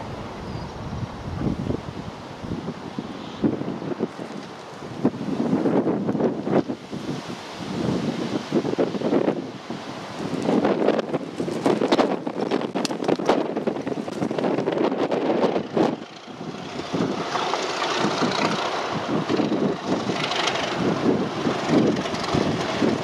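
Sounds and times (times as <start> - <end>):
diesel locomotive engines running: 0.0 - 7.6, 8.2 - 23.0
wind buffeting microphone: 0.0 - 23.0
train wheels rumbling on rails: 10.0 - 23.0.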